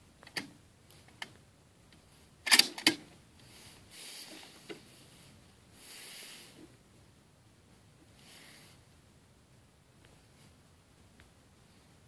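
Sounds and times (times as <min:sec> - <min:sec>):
mechanical clicks and knocks: 0:00.2 - 0:01.3, 0:02.4 - 0:03.0.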